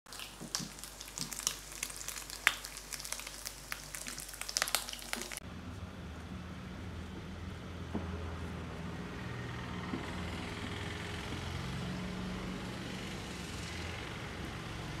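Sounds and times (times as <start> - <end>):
dense crackling with clicks: 0.1 - 5.4.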